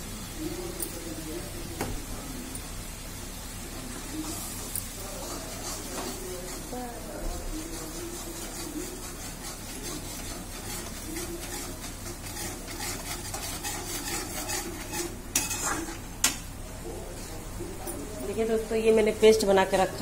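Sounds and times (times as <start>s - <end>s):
paste sizzling in oil: 2.2s - 16.2s
spoon scraping paste in pan: 5.1s - 16.1s.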